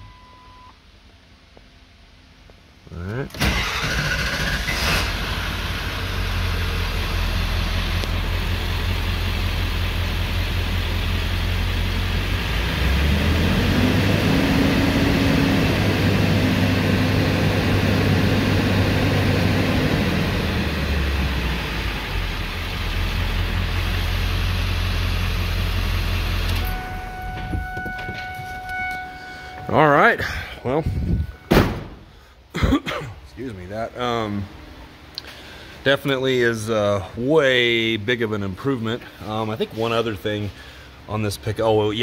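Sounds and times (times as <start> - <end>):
diesel engine idling and revving: 3.5 - 29.7.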